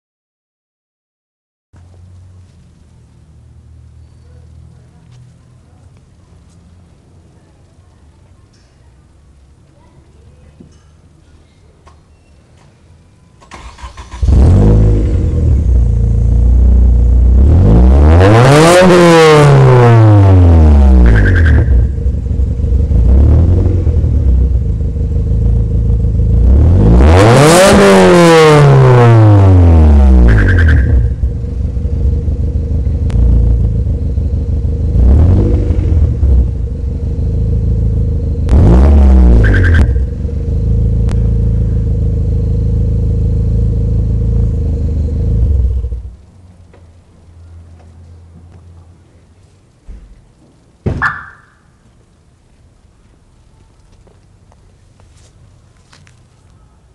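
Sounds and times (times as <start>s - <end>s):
car engine revving: 13.5s - 46.2s
whistle as revs drop: 20.9s - 22.0s, 30.1s - 31.2s, 39.2s - 40.2s, 50.9s - 51.8s.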